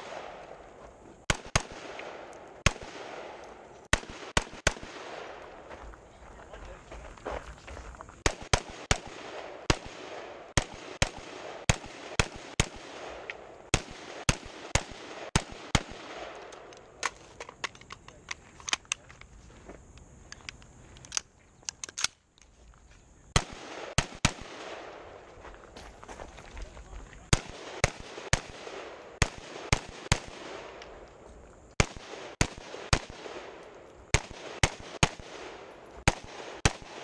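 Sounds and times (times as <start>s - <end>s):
rifle shots: 0.0s - 0.6s, 1.2s - 5.6s, 8.2s - 17.2s, 23.4s - 25.2s, 27.2s - 31.0s, 31.8s - 37.0s.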